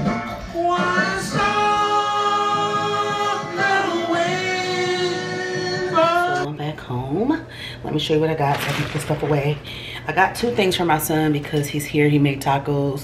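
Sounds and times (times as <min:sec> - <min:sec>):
old man singing karaoke: 0:00.4 - 0:06.5.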